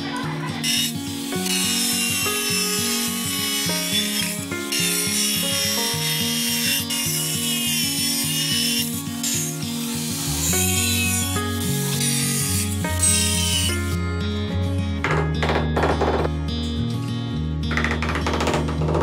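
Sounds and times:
angle grinder cutting tile: 0.0 - 14.0
background music with bass line: 10.2 - 19.0.

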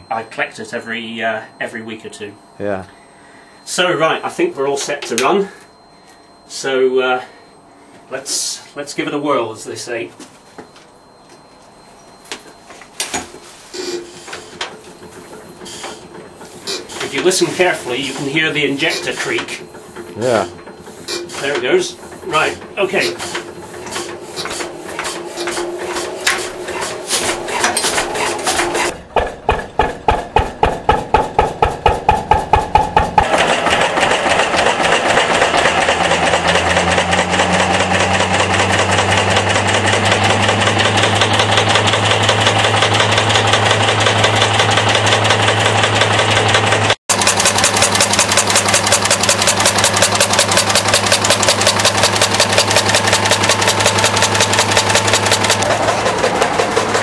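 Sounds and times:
steady low hum: 0.0 - 33.2
diesel engine starting up: 25.1 - 57.0.

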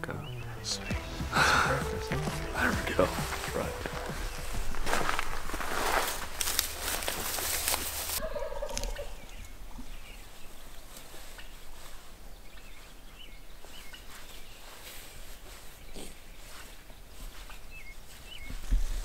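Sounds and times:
turkey gobbling: 8.2 - 9.2.

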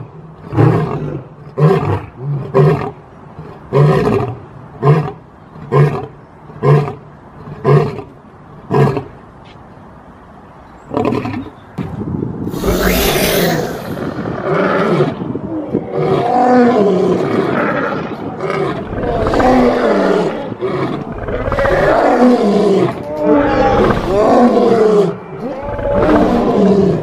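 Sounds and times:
noisy hiss: 12.5 - 14.8, 18.7 - 22.2
dinosaur roars: 12.5 - 27.0.

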